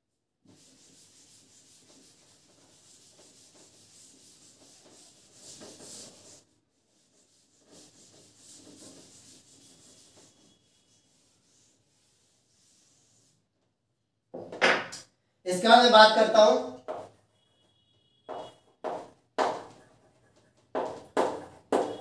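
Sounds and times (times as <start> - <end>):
faint rubbing: 0.5 - 13.4.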